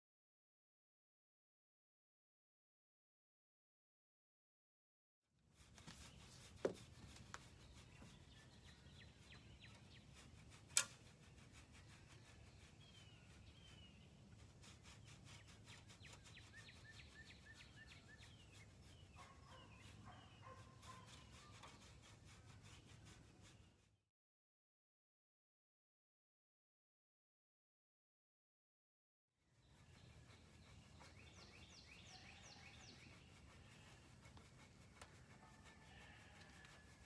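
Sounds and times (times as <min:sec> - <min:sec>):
scratcher scratching horse's coat: 0:05.6 - 0:23.9, 0:29.6 - 0:37.0
small birds chirping: 0:05.6 - 0:23.9, 0:29.5 - 0:37.0.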